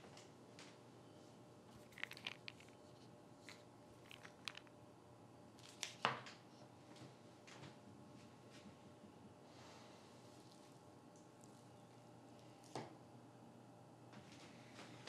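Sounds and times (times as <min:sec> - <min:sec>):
plastic pill bottle clicks and rattles: 0:01.7 - 0:02.8, 0:03.4 - 0:04.7.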